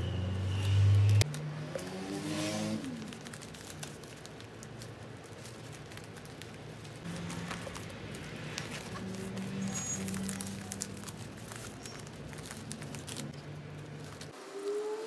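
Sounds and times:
wrapping paper rustling and crinkling: 0:02.7 - 0:14.8.

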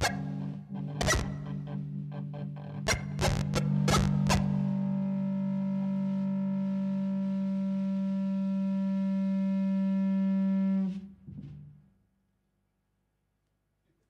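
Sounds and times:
distorted electric guitar chord: 0:00.0 - 0:07.1.

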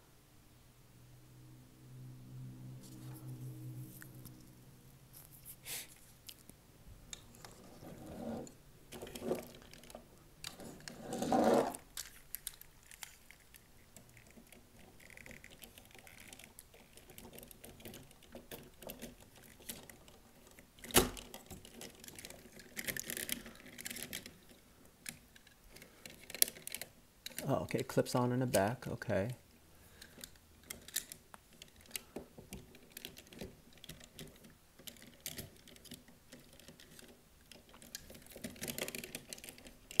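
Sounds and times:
plastic toy parts clicking: 0:08.9 - 0:10.9, 0:11.7 - 0:27.5, 0:30.0 - 0:40.0.

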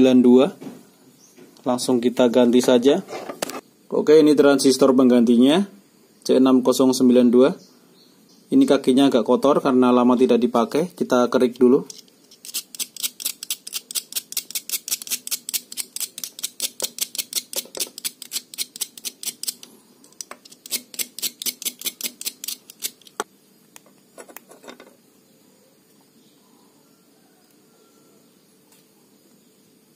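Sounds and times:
metal tool scraping metal leads: 0:11.8 - 0:23.2.

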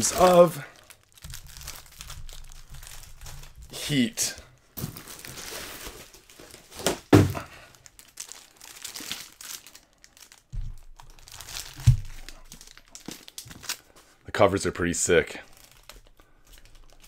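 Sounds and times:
plastic wrapping crinkling: 0:00.0 - 0:14.2, 0:15.4 - 0:17.0
books thudding on table: 0:06.8 - 0:07.5.

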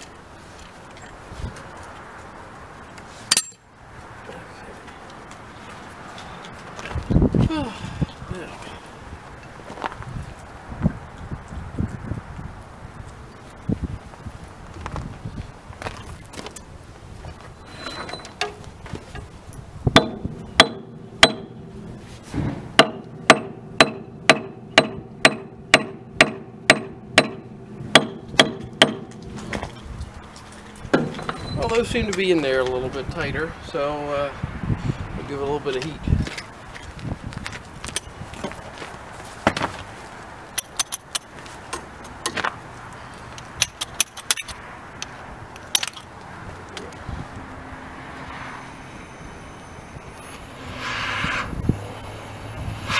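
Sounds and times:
sharp metallic clicks and clinks: 0:03.3 - 0:03.7, 0:40.6 - 0:42.4, 0:43.3 - 0:46.1
hammer striking metal: 0:20.0 - 0:22.0, 0:22.8 - 0:29.2
low thump: 0:22.3 - 0:24.0
gas torch hissing: 0:50.2 - 0:52.9.

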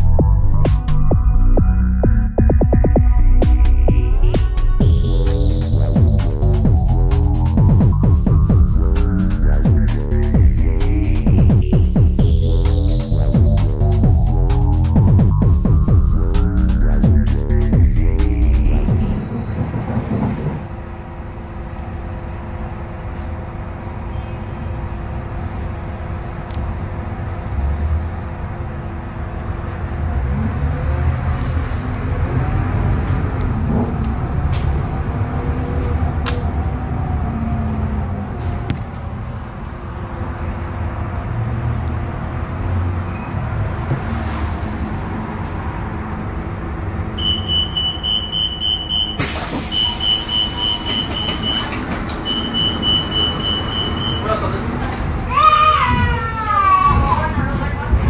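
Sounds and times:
rapid electronic beeping: 0:00.0 - 0:19.3, 0:52.3 - 0:54.3
bus engine humming: 0:00.0 - 0:58.0.

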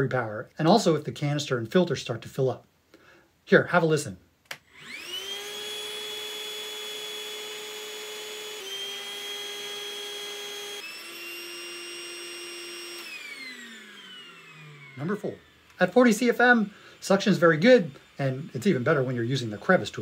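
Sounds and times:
handheld vacuum motor whine: 0:04.6 - 0:20.0.

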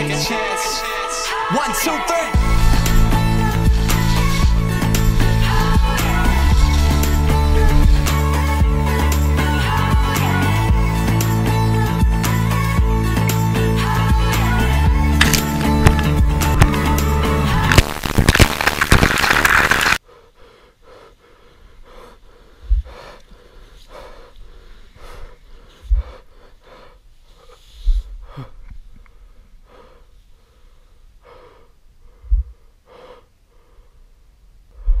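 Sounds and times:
background music: 0:00.0 - 0:19.9
low thumps: 0:02.4 - 0:08.9, 0:14.6 - 0:18.6.

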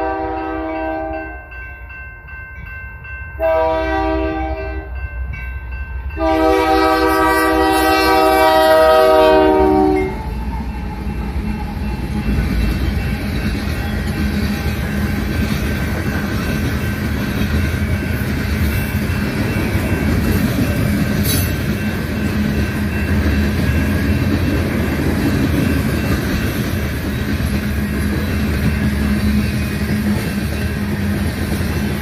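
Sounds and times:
locomotive air horn: 0:00.0 - 0:01.3, 0:03.4 - 0:05.0, 0:06.2 - 0:10.2
train cars rumbling and clattering: 0:00.0 - 0:32.0.

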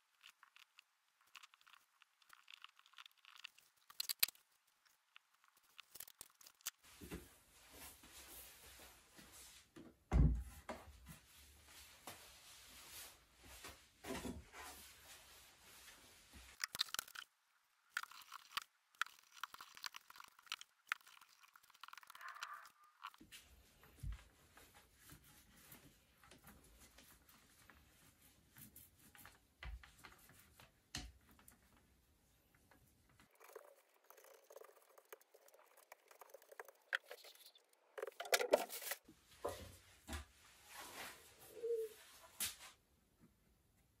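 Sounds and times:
paint roller sticky crackling: 0:00.0 - 0:06.9, 0:16.5 - 0:17.3, 0:17.9 - 0:23.2, 0:33.2 - 0:39.0
scraping and rustling: 0:33.4 - 0:39.1.

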